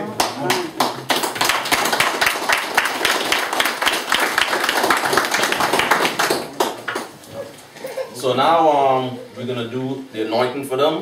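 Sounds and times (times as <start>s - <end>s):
people clapping: 0.0s - 7.7s.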